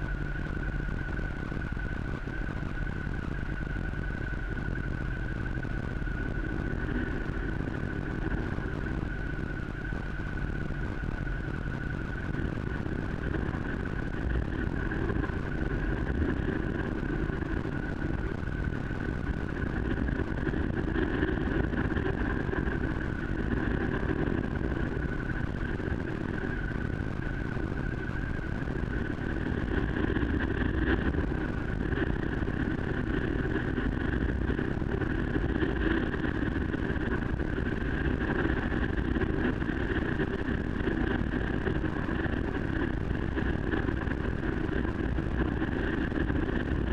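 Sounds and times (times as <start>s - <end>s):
steady whine: 0.0s - 46.9s
vehicle rumble: 0.0s - 46.9s.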